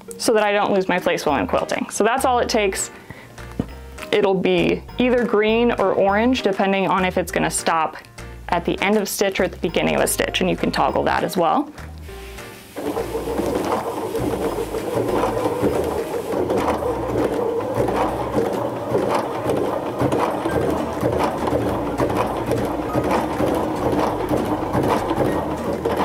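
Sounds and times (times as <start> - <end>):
sewing machine running: 12.6 - 26.0.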